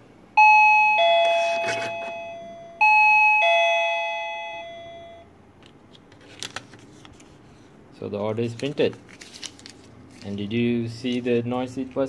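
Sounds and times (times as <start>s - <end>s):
ding-dong alarm chime: 0.4s - 5.3s.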